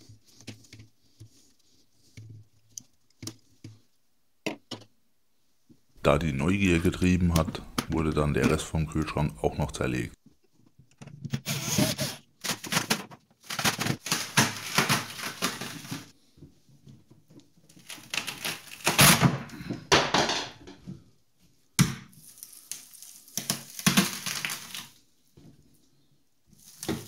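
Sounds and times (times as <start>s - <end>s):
foam and plastic tearing: 11.4s - 16.1s, 17.7s - 19.4s, 22.1s - 25.0s, 26.5s - 27.0s.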